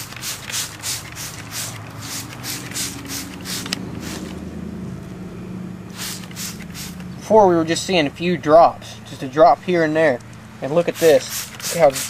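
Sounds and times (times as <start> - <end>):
spray bottle hissing sprays: 0.0 - 4.4, 5.9 - 7.1, 10.8 - 12.0
low steady hum: 1.2 - 12.0.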